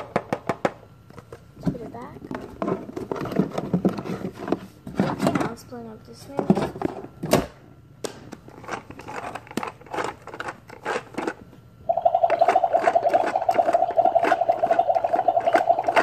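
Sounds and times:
toy blender buzzing whir: 0:08.9 - 0:16.0.

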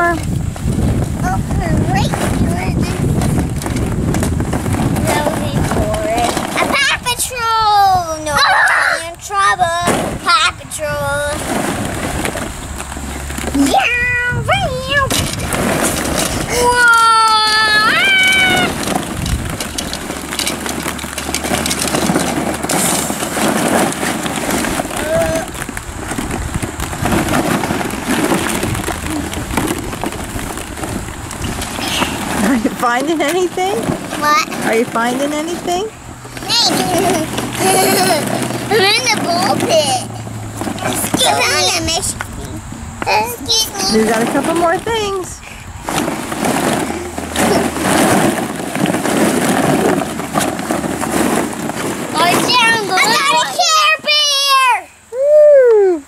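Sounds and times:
plastic balls clattering: 0:00.0 - 0:54.7.

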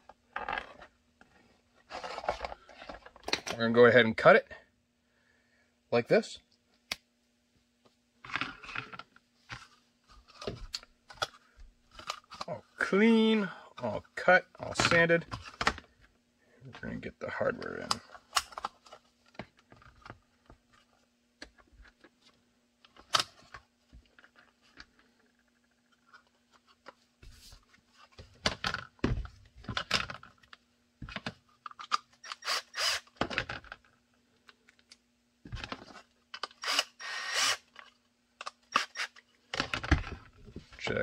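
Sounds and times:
small cordless drill: 0:32.2 - 0:33.2, 0:36.4 - 0:37.8, 0:38.7 - 0:39.2.

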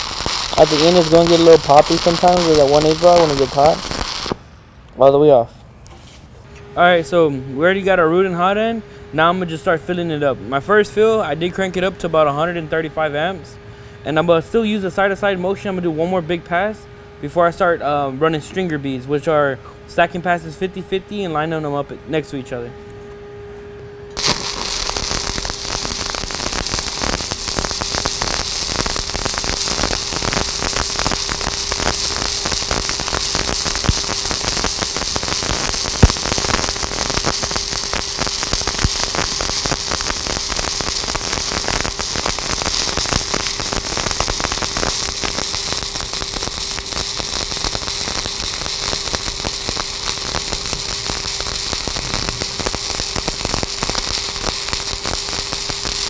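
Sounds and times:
welding arc crackling: 0:00.0 - 0:05.3, 0:24.1 - 0:56.0
steady hum: 0:00.0 - 0:56.0.

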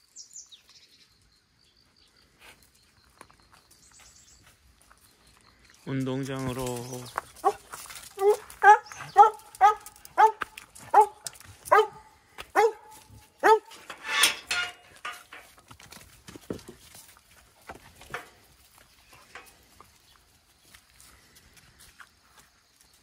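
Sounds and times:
dog barking: 0:08.2 - 0:13.7
short harsh rasping sound: 0:13.7 - 0:14.8.

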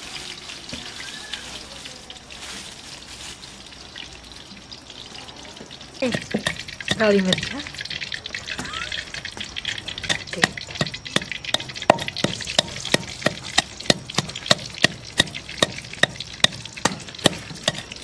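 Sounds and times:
pestle pounding in mortar: 0:06.0 - 0:18.0.

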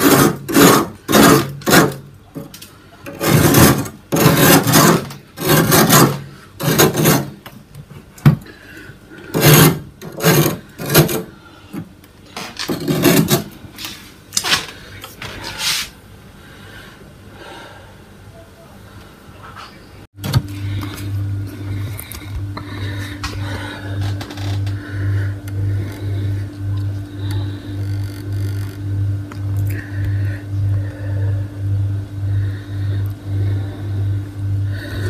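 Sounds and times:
scraping frost in freezer: 0:00.0 - 0:02.1, 0:03.1 - 0:07.4, 0:09.2 - 0:11.4, 0:12.6 - 0:14.6, 0:15.2 - 0:16.0.

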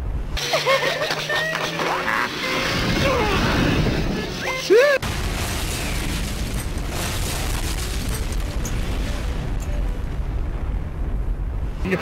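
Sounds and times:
long deep rumble: 0:05.0 - 0:11.9
explosion: 0:05.0 - 0:12.0.

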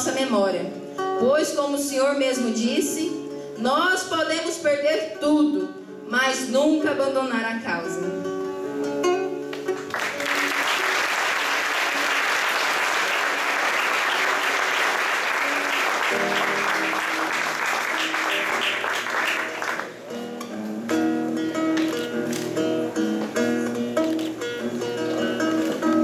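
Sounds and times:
acoustic guitar playing softly: 0:00.0 - 0:26.0
audience applauding: 0:09.5 - 0:20.0.

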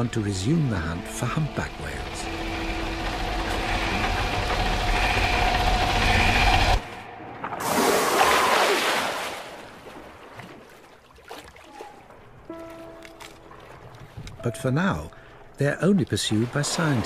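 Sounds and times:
ship engine rumble: 0:00.0 - 0:07.8, 0:11.7 - 0:17.0
faint sea noise: 0:00.0 - 0:17.0
water: 0:00.0 - 0:17.0.

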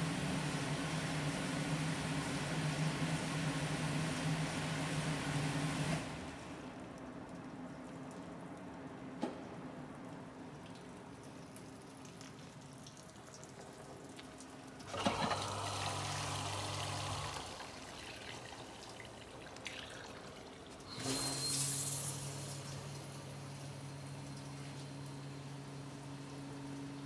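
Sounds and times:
dishwasher pump humming: 0:14.8 - 0:27.0.

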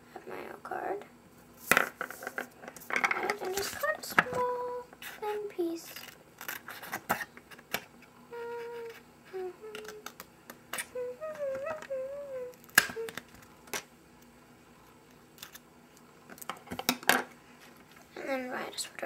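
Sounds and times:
child humming: 0:08.3 - 0:10.2, 0:10.8 - 0:13.3.

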